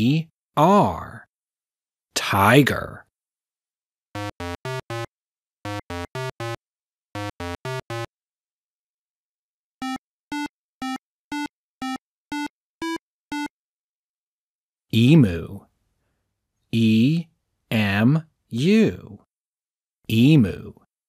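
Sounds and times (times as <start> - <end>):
eight-bit synthesizer blips: 4.2 - 6.6, 7.2 - 8.1.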